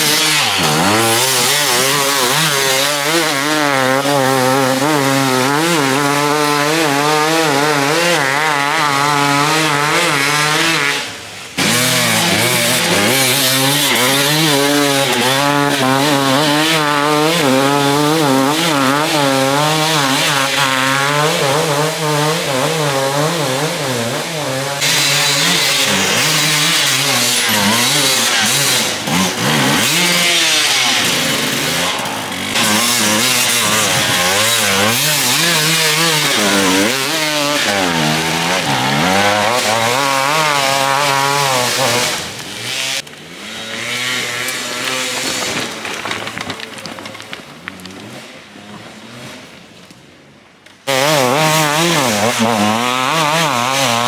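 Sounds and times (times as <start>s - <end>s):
dirt bike engines revving: 0.0s - 49.7s, 50.8s - 54.0s.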